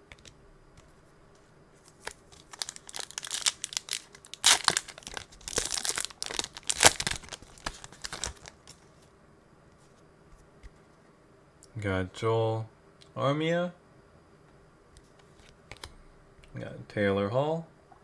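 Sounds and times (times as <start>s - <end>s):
foil wrapper tearing and crinkling: 2.0s - 8.8s.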